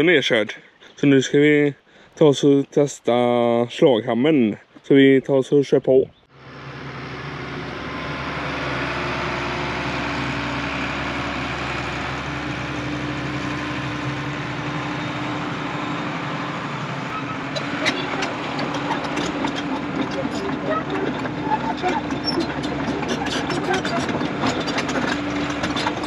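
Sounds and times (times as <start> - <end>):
excavator diesel engine running: 6.3 - 26.0
sharp metallic clanks: 17.1 - 26.0.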